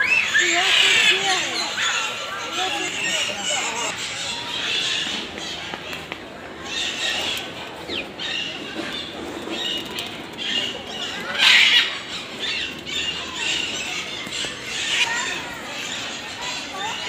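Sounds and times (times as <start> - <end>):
parrots chirping and squawking: 0.0 - 17.0.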